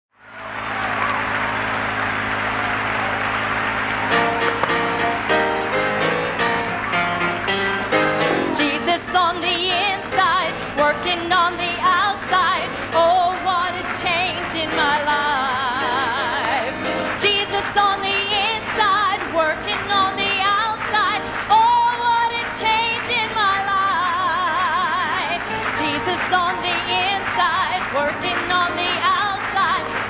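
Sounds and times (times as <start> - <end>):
woman singing with vibrato: 8.4 - 30.0
church choir singing: 25.2 - 30.0.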